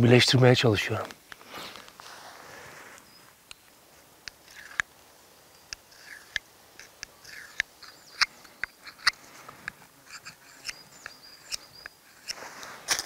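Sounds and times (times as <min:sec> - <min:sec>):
knife clicking on stone: 0:05.7 - 0:09.2, 0:10.1 - 0:12.4
knife scraping sharpening stone: 0:05.8 - 0:09.2, 0:10.1 - 0:12.4.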